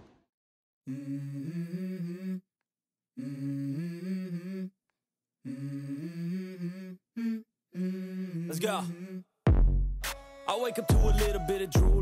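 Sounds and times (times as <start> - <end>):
hummed vocal melody: 0.8 - 2.5, 3.1 - 4.8, 5.4 - 9.4.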